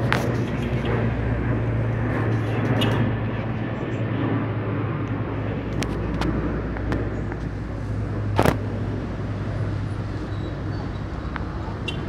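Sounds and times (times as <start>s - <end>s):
low engine rumble: 0.0s - 12.0s
loud crack: 8.3s - 8.8s.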